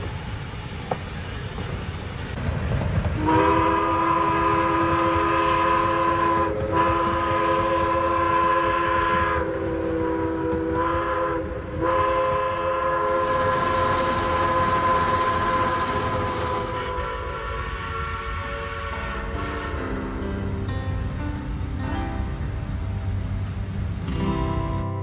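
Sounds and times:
train rumbling: 0.0s - 25.0s
train horn blasts: 3.2s - 20.8s.

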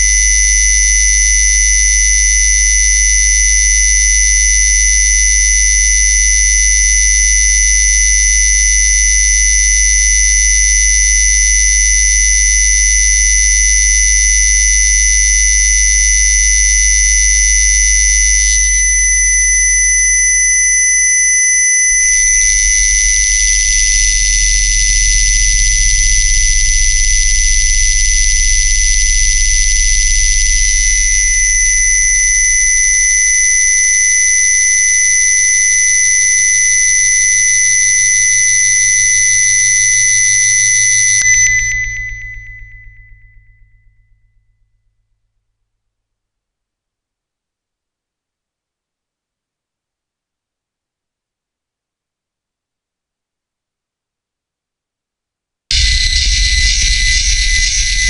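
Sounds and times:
low electronic hum: 0.0s - 20.1s, 22.2s - 35.9s, 41.2s - 44.4s, 55.7s - 58.0s
shrill high-pitched whine: 0.0s - 44.4s, 55.7s - 58.0s.

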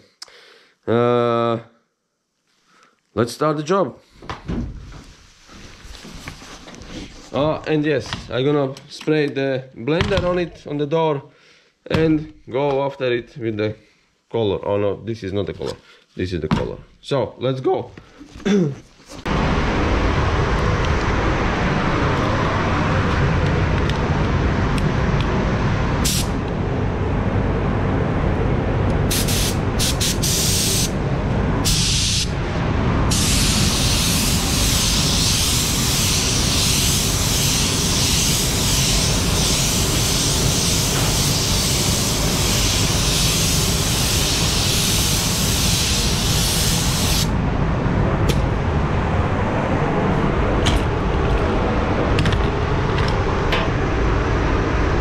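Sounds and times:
steady low rumble: 19.2s - 55.0s
paint spray gun hissing: 26.0s - 26.3s, 29.1s - 30.9s, 31.7s - 32.3s, 33.1s - 47.3s.

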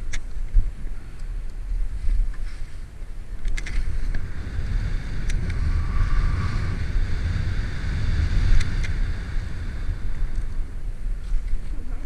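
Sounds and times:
wind buffeting microphone: 0.0s - 12.0s
sharp clicks: 3.4s - 3.9s
skis sliding on snow: 3.7s - 12.0s.

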